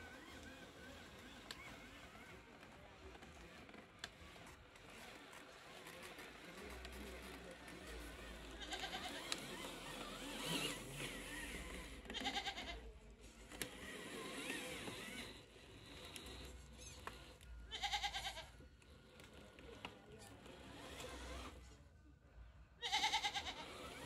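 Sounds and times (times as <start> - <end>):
goat bleating: 8.6 - 9.2, 12.1 - 12.8, 17.7 - 18.6, 22.8 - 23.6.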